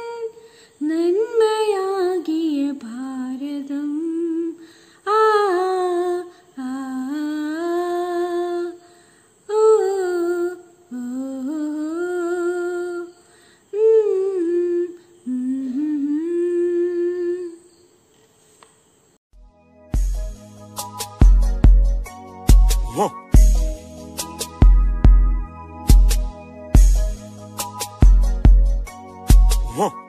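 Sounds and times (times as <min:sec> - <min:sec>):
woman humming: 0:13.7 - 0:17.8.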